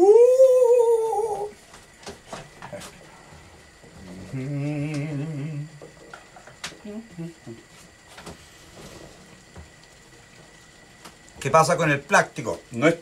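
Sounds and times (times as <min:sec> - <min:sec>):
man humming low note: 0:00.0 - 0:01.6, 0:04.0 - 0:05.8, 0:06.8 - 0:07.6
man singing falsetto note: 0:00.0 - 0:01.6.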